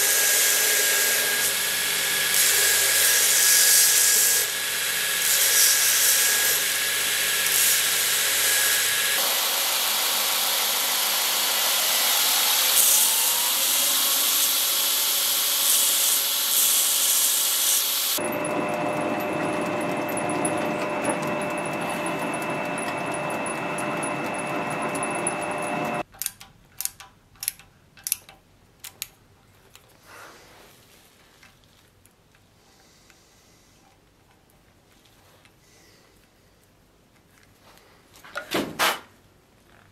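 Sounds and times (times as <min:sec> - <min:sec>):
belt grinder grinding steel: 0:00.0 - 0:26.0
drill press drilling steel: 0:00.1 - 0:26.0.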